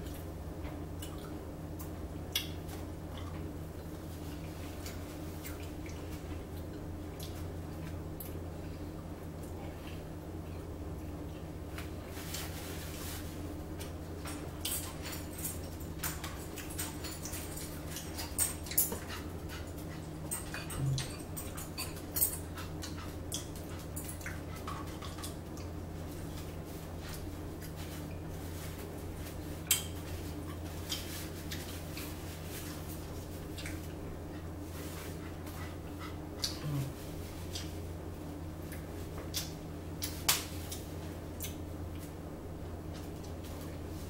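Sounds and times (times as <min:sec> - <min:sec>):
steady low hum: 0:00.0 - 0:44.0
chewing smacks and clicks: 0:01.0 - 0:03.4, 0:04.8 - 0:08.4, 0:16.4 - 0:25.8, 0:33.5 - 0:34.0, 0:35.5 - 0:36.6, 0:38.6 - 0:41.6.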